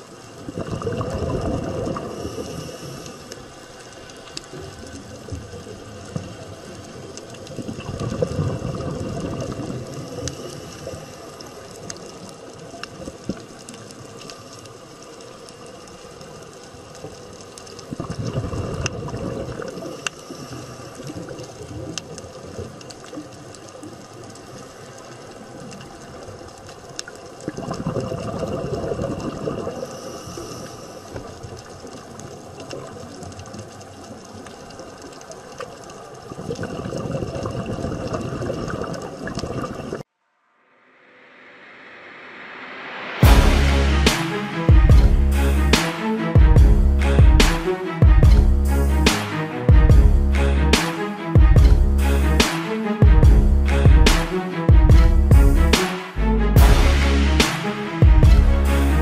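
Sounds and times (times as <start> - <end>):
underwater bubbles gurgling: 0.0 - 40.1
faint clicks: 3.0 - 8.5, 19.6 - 27.6.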